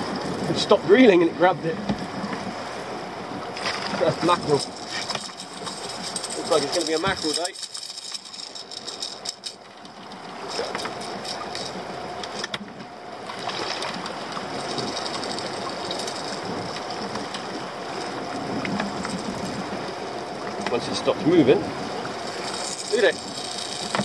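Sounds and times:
outboard motor running: 0.0s - 24.0s
water washing against hull: 0.0s - 24.0s
sharp clicks from handling fish: 4.6s - 17.5s.

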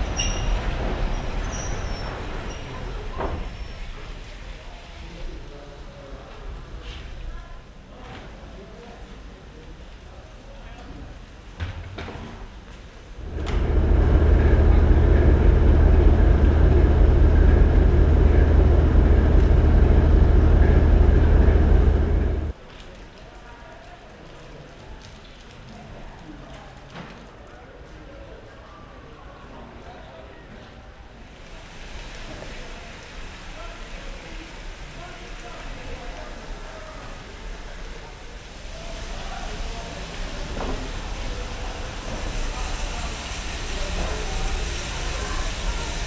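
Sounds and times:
steam train hiss and rumble: 13.1s - 22.5s, 31.2s - 46.0s
large engine rumbling: 13.2s - 22.6s.

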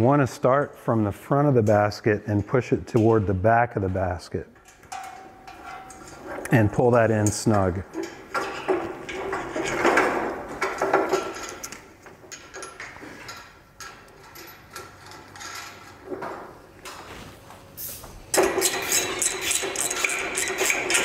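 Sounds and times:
metal hardware clicking and clinking: 4.6s - 16.2s.

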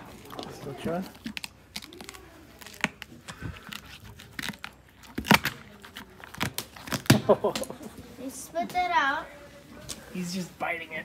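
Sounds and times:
horse chewing carrot: 0.0s - 6.9s.

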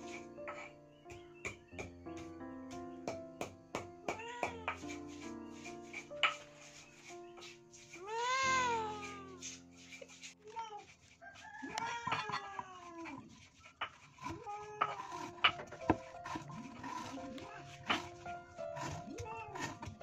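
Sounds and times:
cat meowing: 8.0s - 9.4s.

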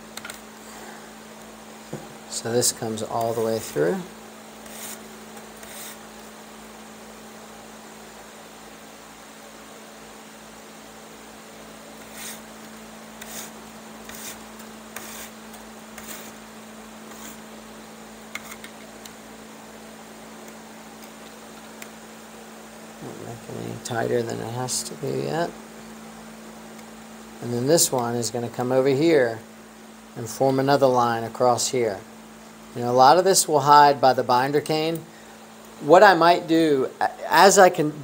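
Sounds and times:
electrical hum: 0.0s - 38.0s
cane strand scratching through weave: 4.6s - 6.0s, 12.0s - 12.5s, 13.2s - 16.4s, 17.1s - 17.4s.

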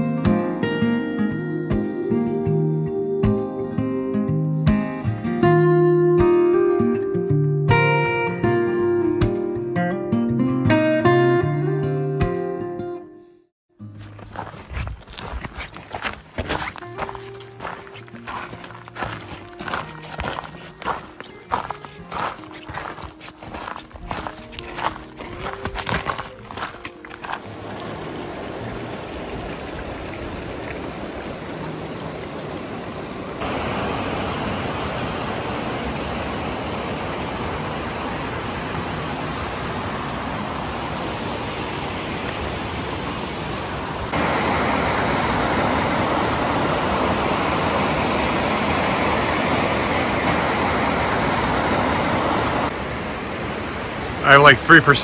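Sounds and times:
creek water rushing over rocks: 14.0s - 55.0s.

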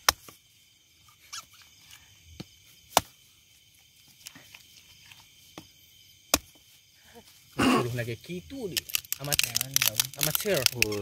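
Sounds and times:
crickets chirring: 0.0s - 11.0s
dry wood cracking: 8.6s - 11.0s
wood snaps and rustles: 8.7s - 11.0s.

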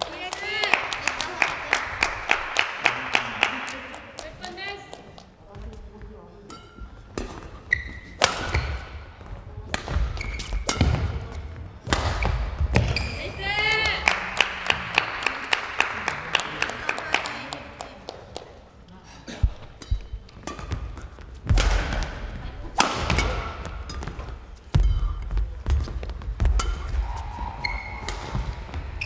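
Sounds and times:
shoes squeaking on court floor: 4.2s - 13.9s, 19.5s - 29.0s
racket striking shuttlecock: 6.5s - 9.0s, 9.7s - 13.2s, 19.8s - 29.0s.

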